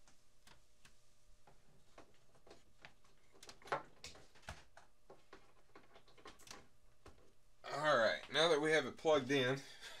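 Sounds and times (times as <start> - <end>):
clicks and knocks of handling: 0.5 - 7.3.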